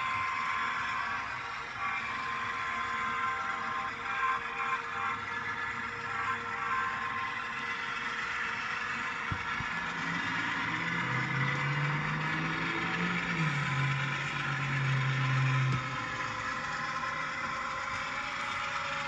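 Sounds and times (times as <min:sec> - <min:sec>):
low engine hum: 0:00.0 - 0:19.0
model train running noise: 0:00.0 - 0:19.0.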